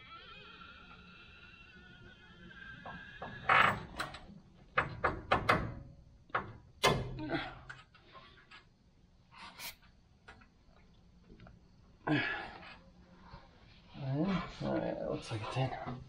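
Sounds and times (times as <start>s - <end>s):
metal knocks and clunks: 2.9s - 7.8s.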